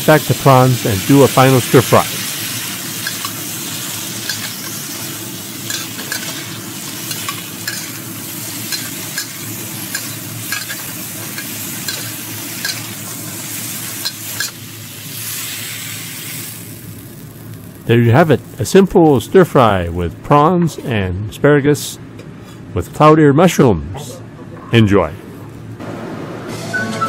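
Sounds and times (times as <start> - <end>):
food sizzling in a wok: 0.0 - 17.9.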